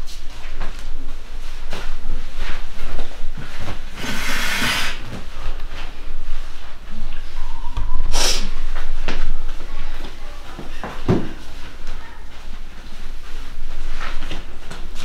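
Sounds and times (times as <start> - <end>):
forceful hissing exhale: 4.0 - 5.0.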